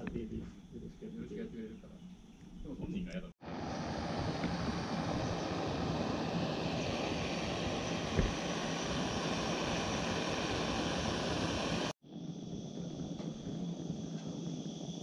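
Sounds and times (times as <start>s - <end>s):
gas stove burner hissing: 3.4s - 15.0s.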